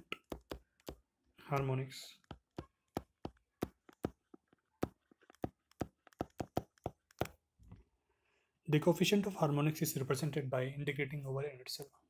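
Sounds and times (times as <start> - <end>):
stylus tapping on screen: 0.0 - 7.5.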